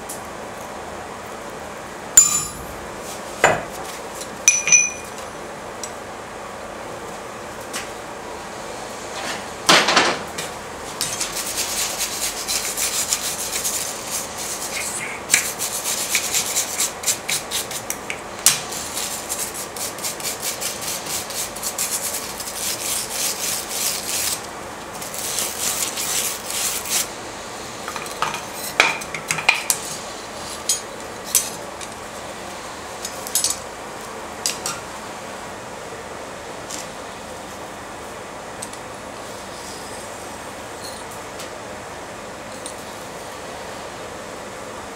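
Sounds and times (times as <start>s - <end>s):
metallic clank: 2.2s - 2.8s
light metal clinks: 4.5s - 5.2s
wire brush scrubbing metal: 11.2s - 17.9s, 18.7s - 24.4s.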